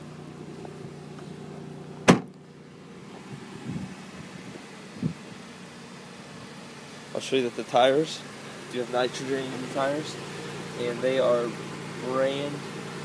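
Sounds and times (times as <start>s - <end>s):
car engine idling: 0.0s - 13.0s
car trunk lid slamming: 2.0s - 2.4s.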